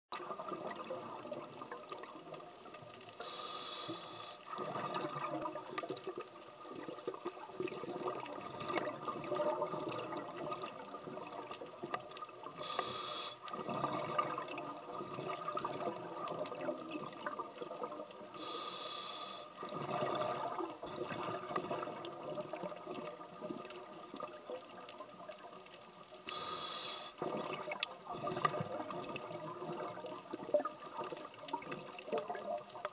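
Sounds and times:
bubbles rumbling underwater: 0.1s - 2.7s, 4.5s - 12.7s, 13.5s - 18.3s, 19.6s - 25.6s, 27.2s - 32.9s
regulator inhale hiss: 3.2s - 4.5s, 12.6s - 13.4s, 18.4s - 19.6s, 26.3s - 27.2s.

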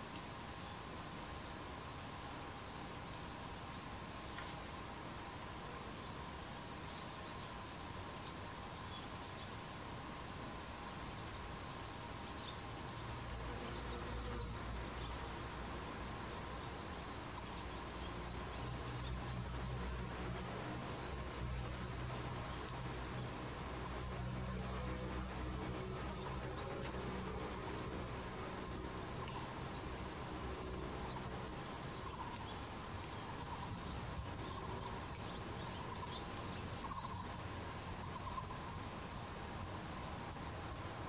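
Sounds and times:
steady hiss: 0.0s - 41.0s.

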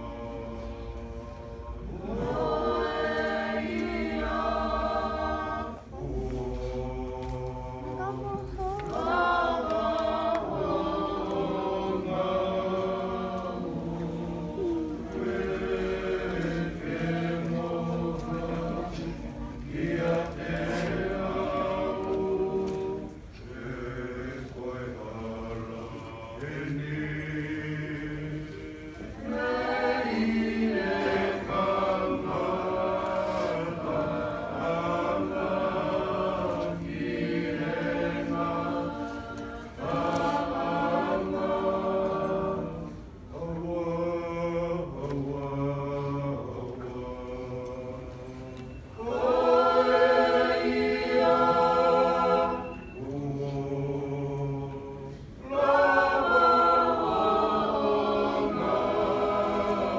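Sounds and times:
choir singing a hymn: 0.0s - 59.9s.

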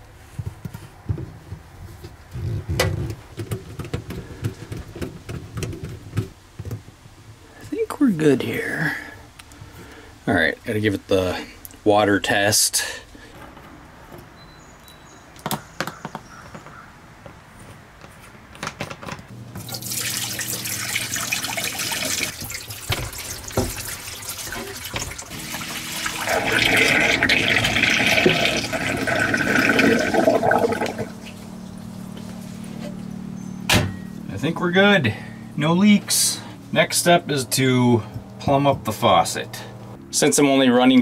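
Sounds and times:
water running into a metal sink: 19.5s - 31.4s.

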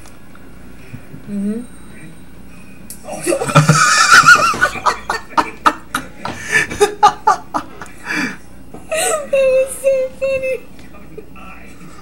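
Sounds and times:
man laughing hard: 3.2s - 7.9s.

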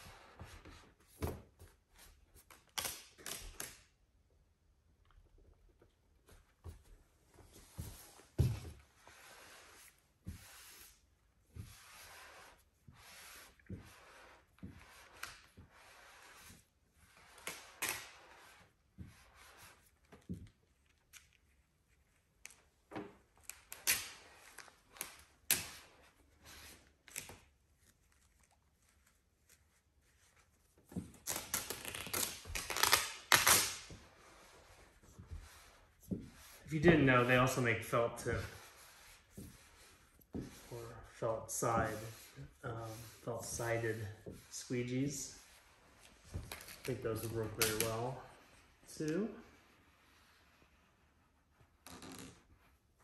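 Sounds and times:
cloth rubbing vinyl: 6.7s - 20.2s, 27.8s - 53.0s
vinyl sheet rustling and crinkling: 19.6s - 48.2s.

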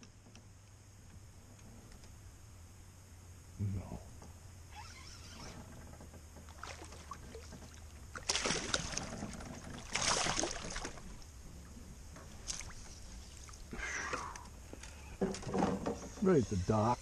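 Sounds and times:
water splashing beside canoe: 6.4s - 11.4s, 12.2s - 13.7s.

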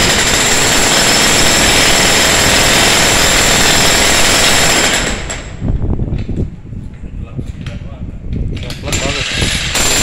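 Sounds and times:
demolition hammer breaking concrete: 0.0s - 5.6s, 8.9s - 10.0s.

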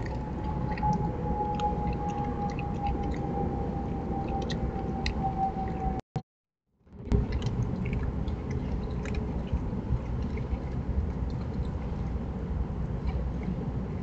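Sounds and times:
low background rumble: 0.0s - 6.0s, 6.8s - 14.0s
animal crunching dry food: 7.1s - 12.2s.

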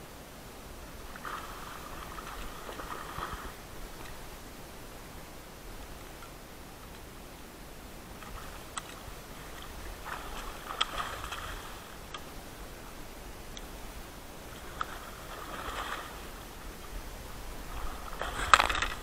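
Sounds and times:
fish splashing in water: 1.0s - 4.3s, 8.2s - 12.2s, 14.5s - 16.8s, 17.6s - 19.0s.

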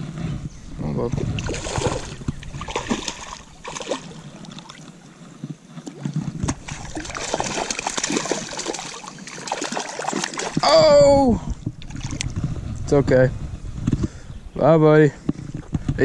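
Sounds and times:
fish splashing in water: 1.4s - 4.9s, 5.9s - 10.6s.

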